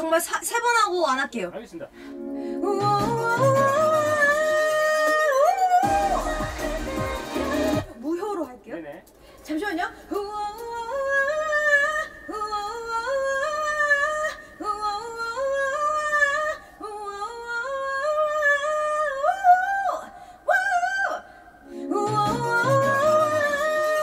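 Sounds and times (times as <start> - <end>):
woman singing unaccompanied: 2.6 - 8.7, 9.5 - 24.0.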